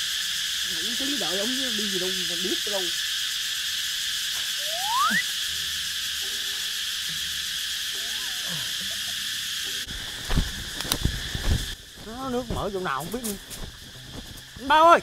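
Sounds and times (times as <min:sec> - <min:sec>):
insects chirring: 0:00.0 - 0:15.0
short rising whistle: 0:04.6 - 0:05.4
rustling noise: 0:09.9 - 0:14.7.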